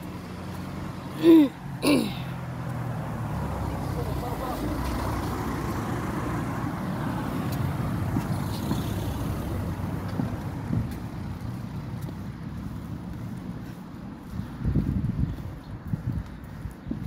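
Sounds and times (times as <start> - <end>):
car driving past: 0.0 - 13.4.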